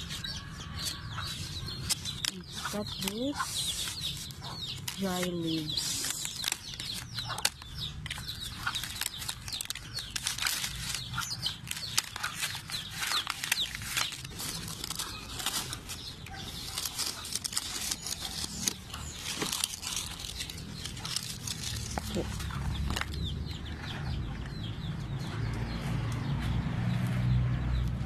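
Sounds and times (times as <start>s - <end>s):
dry fern fronds crackling: 0.8s - 23.2s.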